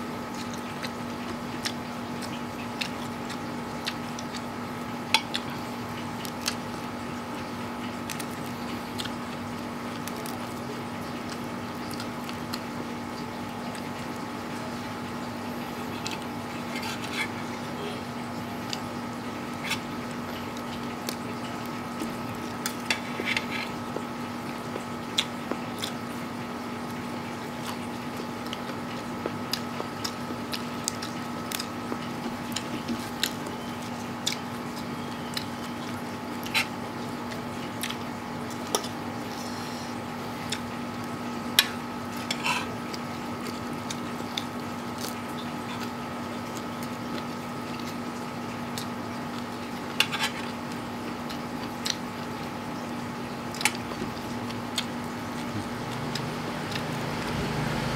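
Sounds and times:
steady background hum: 0.0 - 57.9
man chewing: 0.1 - 57.9.

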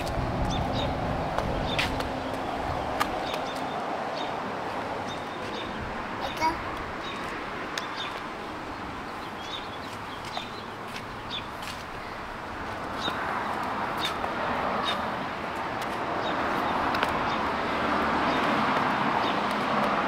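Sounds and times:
small birds chirping: 0.4 - 4.4, 5.0 - 12.3, 12.9 - 14.2.

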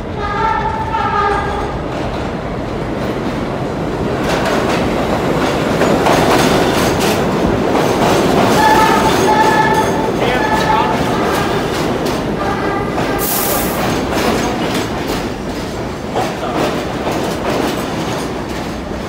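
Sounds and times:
subway train rumble and wheel clatter: 0.0 - 19.0
train horn blasts: 0.1 - 1.7, 8.5 - 14.1.

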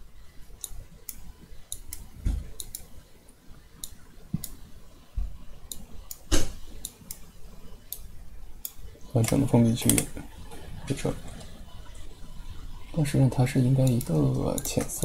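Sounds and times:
computer mouse clicking: 0.6 - 4.7, 5.6 - 11.6, 13.8 - 15.0.

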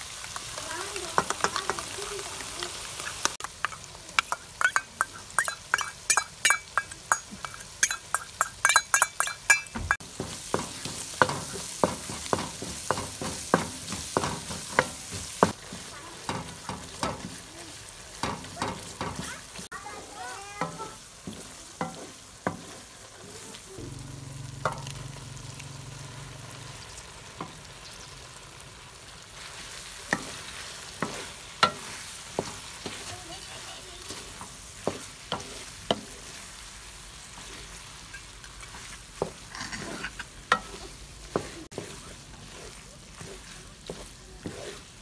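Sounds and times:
okra sizzling in a pan: 0.0 - 45.0
wooden spatula knocking pan: 3.5 - 17.5, 18.1 - 19.7, 20.5 - 22.8, 31.0 - 33.4, 34.1 - 36.2
low hum: 23.8 - 27.0.

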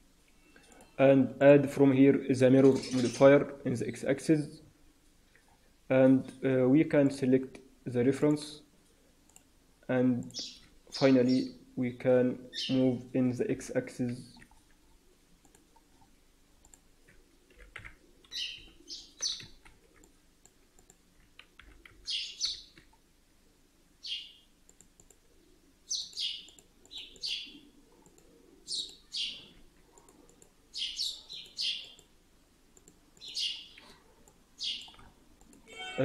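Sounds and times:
bird chirping: 12.5 - 12.9, 18.2 - 19.6, 22.0 - 22.8, 24.0 - 24.5, 25.8 - 29.6, 30.7 - 32.1, 33.2 - 34.0, 34.6 - 35.1.

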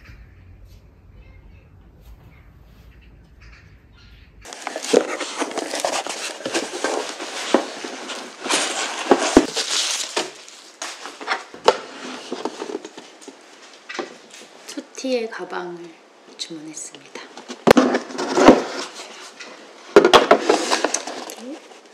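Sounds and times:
packaging rustling and crinkling: 4.5 - 14.6, 17.4 - 21.9.

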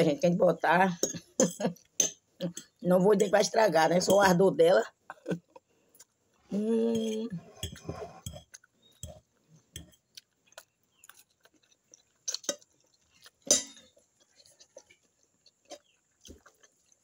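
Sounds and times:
chewing: 5.0 - 17.0
woman humming: 6.5 - 7.6
fork tapping and scraping plate: 6.9 - 10.0.

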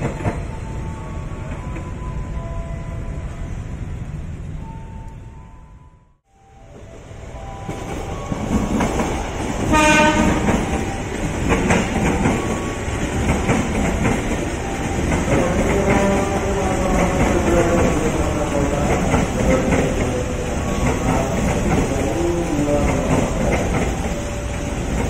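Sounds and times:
electric train passing: 0.0 - 25.0
wheels clicking over rail joints: 7.7 - 25.0
train horn blast: 9.7 - 10.6.

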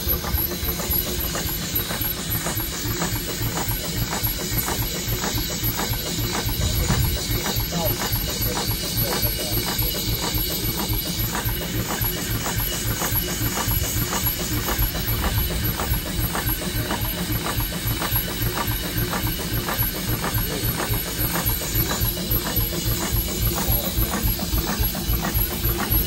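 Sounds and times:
steam traction engine running: 0.0 - 26.0.

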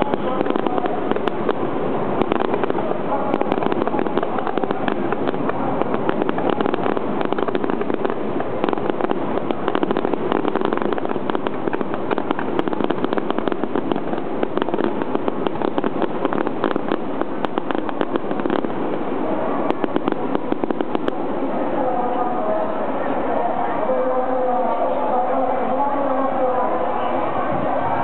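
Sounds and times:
crackle of small pops: 0.0 - 19.0, 19.7 - 21.2
firework shells bursting: 0.0 - 19.1, 19.7 - 21.2.

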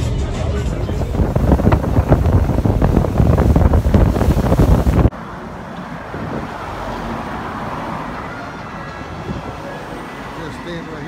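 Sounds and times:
street traffic hum: 0.0 - 11.0
wind buffeting microphone: 0.5 - 5.1, 5.9 - 7.9.

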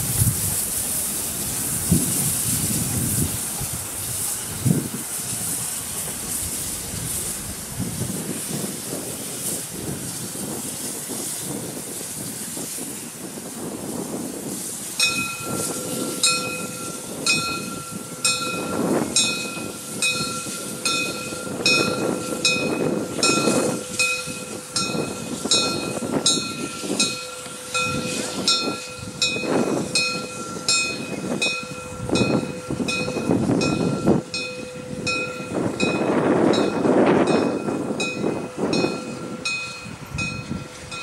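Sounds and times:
steam locomotive pulling train: 0.0 - 41.0.

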